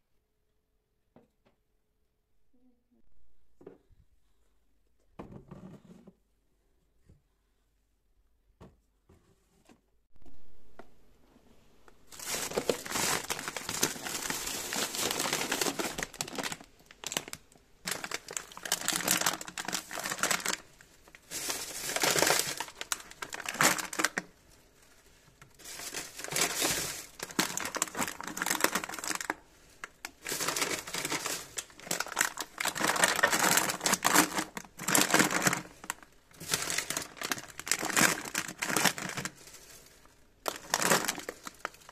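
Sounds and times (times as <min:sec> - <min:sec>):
plastic wrappers crinkling: 0:12.0 - 0:41.9.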